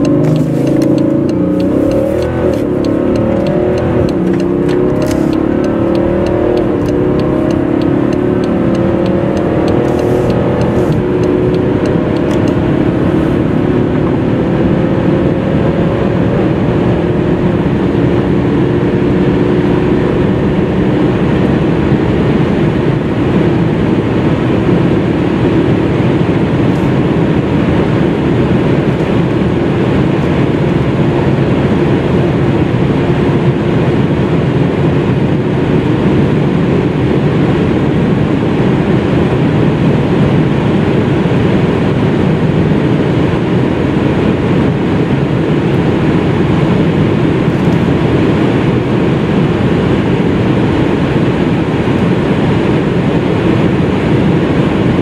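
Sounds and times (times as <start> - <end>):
gearbox upshifts: 0.0 - 13.4, 47.4 - 48.8
diesel engine accelerating hard: 0.0 - 55.0
wind and tyre noise: 0.0 - 55.0.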